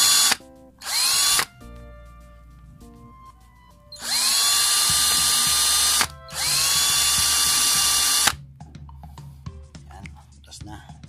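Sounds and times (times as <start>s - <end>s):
electric drill boring plastic: 0.0s - 1.5s, 4.0s - 8.4s.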